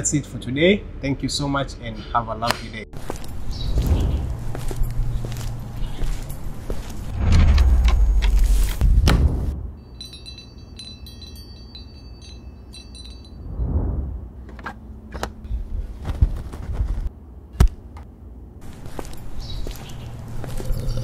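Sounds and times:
high chime notes: 9.8 - 13.6
whoosh: 13.4 - 14.4.

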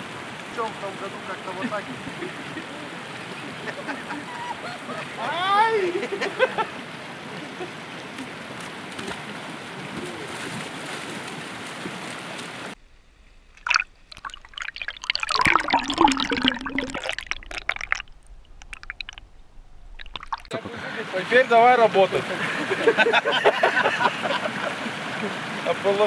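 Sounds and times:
shallow stream babbling: 0.0 - 12.8, 13.5 - 26.0
muffled underwater splashing and gurgling: 13.5 - 20.7.

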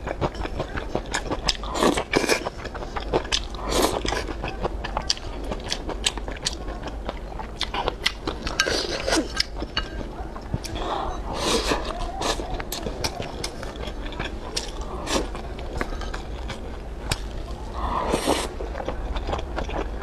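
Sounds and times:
chewing and wet mouth sounds: 0.0 - 20.0.

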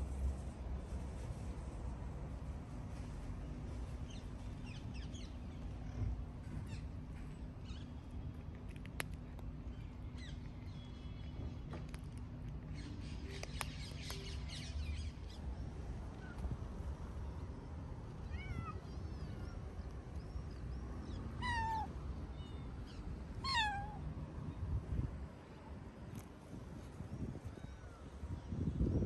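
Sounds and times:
cat meowing: 18.2 - 18.9, 21.4 - 22.0, 23.4 - 24.0.

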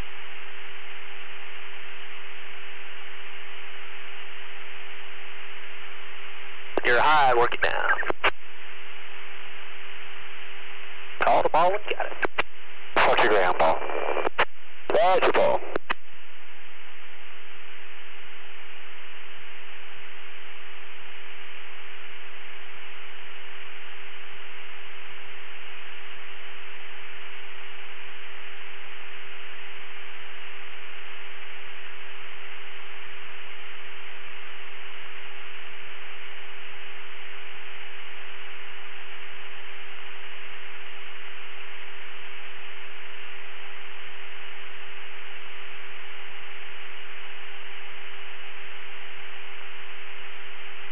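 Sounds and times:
constant hum tone: 0.0 - 50.9
radio static hiss: 0.0 - 50.9.

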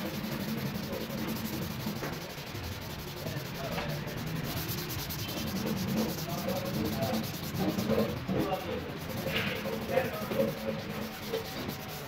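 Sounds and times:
hand rubbing wood: 0.0 - 12.0.

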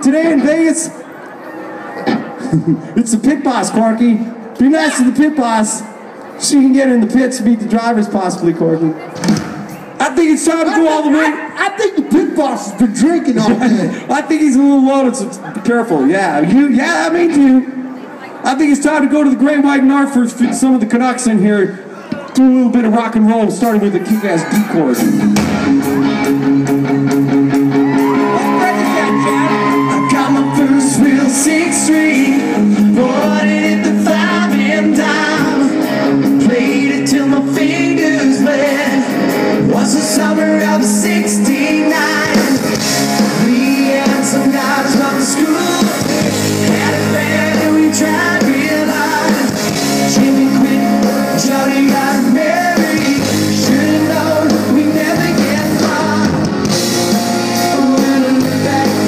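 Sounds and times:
drums: 9.1 - 11.1, 22.1 - 59.0
electric guitars: 24.1 - 59.0
person singing: 28.0 - 56.7, 57.3 - 59.0.

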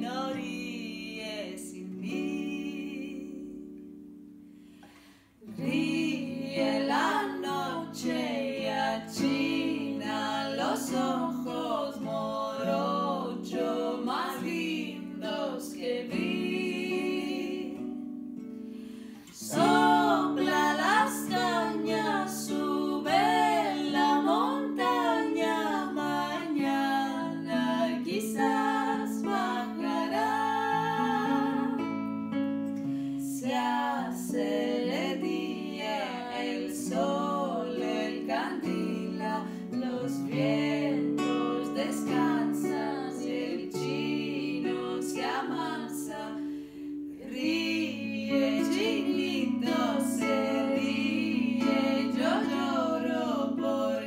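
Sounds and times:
two women singing: 0.0 - 4.1, 4.8 - 54.0
nylon-string guitar plucked and strummed: 5.4 - 47.2.

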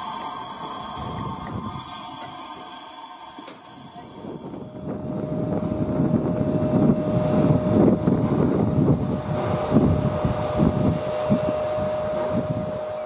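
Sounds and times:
steam locomotive hiss and rattle: 0.0 - 13.0
thin steady tone: 0.0 - 13.0
wind buffeting microphone: 0.9 - 2.0, 3.9 - 13.0.

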